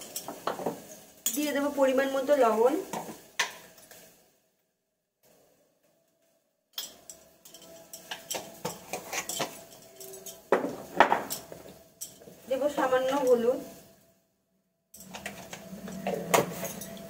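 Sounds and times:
metal spoon clinking on cookware: 0.0 - 1.6, 6.8 - 12.4, 15.0 - 17.0.

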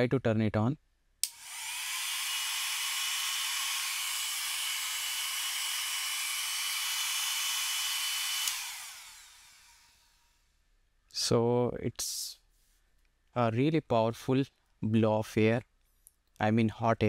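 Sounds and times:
hair dryer blowing with whine: 1.2 - 10.2.

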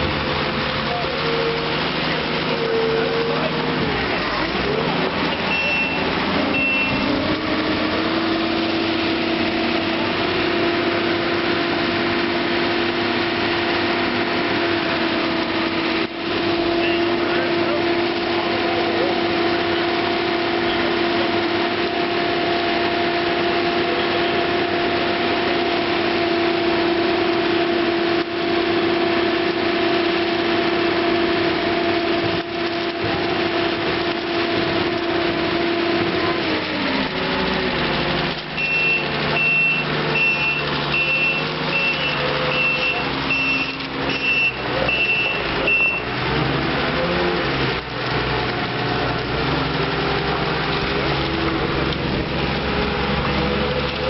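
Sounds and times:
diesel engine running: 0.0 - 54.0
reversing beeper: 4.7 - 8.6, 16.5 - 19.2, 38.6 - 46.2.

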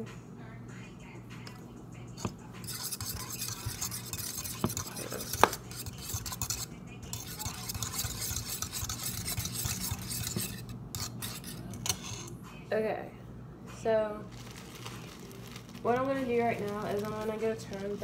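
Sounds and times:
utensil stirring in metal bowl: 2.2 - 12.3, 15.1 - 18.0.

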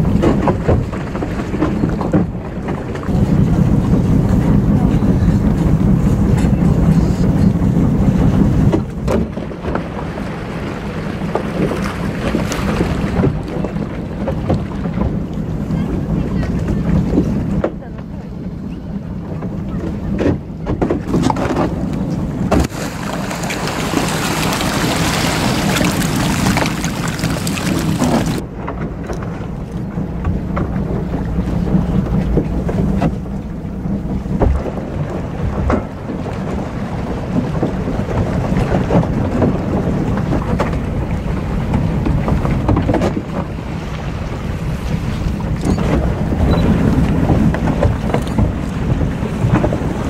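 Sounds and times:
boat engine running: 0.0 - 50.0
wind on microphone: 0.0 - 50.0.

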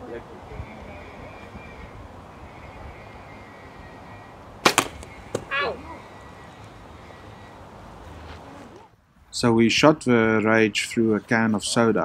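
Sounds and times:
bow string crack: 4.6 - 5.5.

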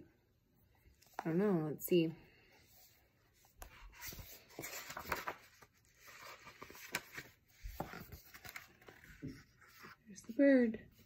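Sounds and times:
book pages rustling: 2.7 - 10.4.

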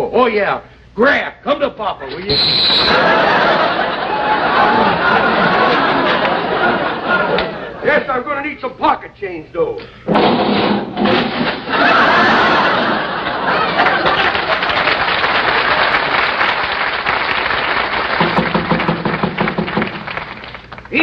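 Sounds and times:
studio audience laughing: 2.7 - 7.9, 11.2 - 16.7
applause: 13.6 - 21.0.

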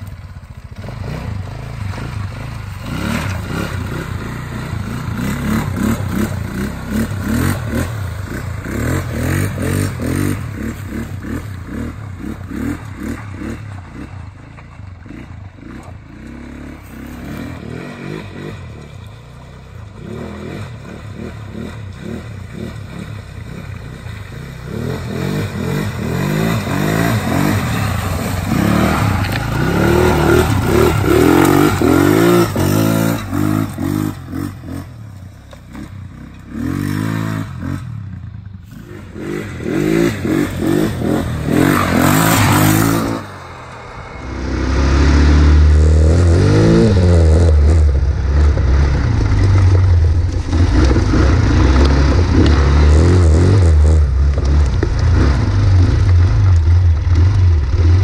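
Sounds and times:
atv engine revving: 0.0 - 58.0
wheels scraping and clattering: 0.0 - 58.0
tyres spinning in mud: 18.2 - 35.7, 47.5 - 58.0.

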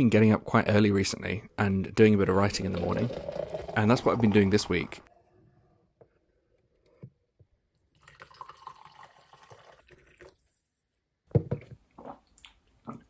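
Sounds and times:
man's voice: 0.0 - 5.1
coffee pouring into a mug: 2.3 - 4.9, 7.9 - 10.5.

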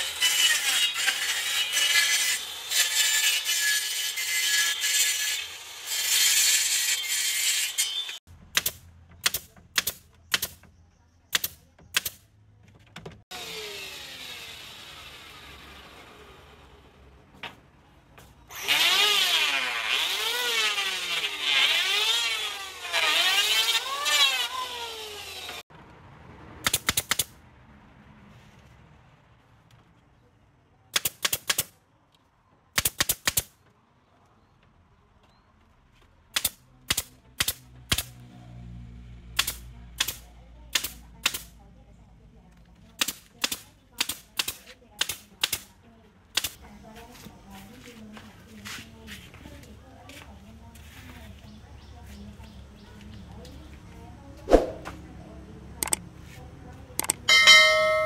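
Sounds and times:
circular saw cutting wood: 0.0 - 8.2, 13.3 - 16.8, 18.5 - 25.6
pneumatic nail gun firing: 8.6 - 10.6, 11.3 - 12.2, 26.6 - 27.3, 36.4 - 38.1, 39.4 - 41.4, 43.0 - 45.6.

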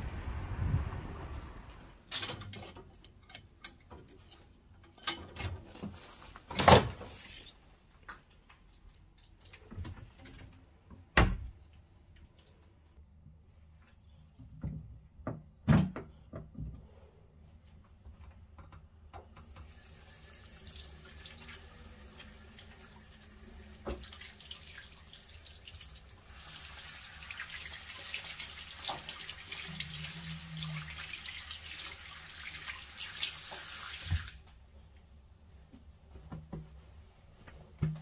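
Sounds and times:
tap water running onto hands: 19.4 - 34.5.

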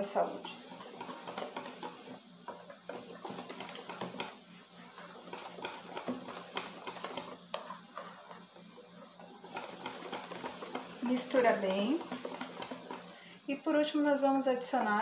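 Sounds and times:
whisk beating batter in metal bowl: 0.0 - 13.3.

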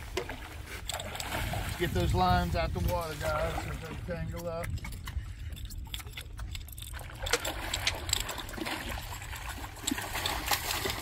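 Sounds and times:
low wind rumble: 0.0 - 11.0
fish splashing in water: 6.0 - 11.0.

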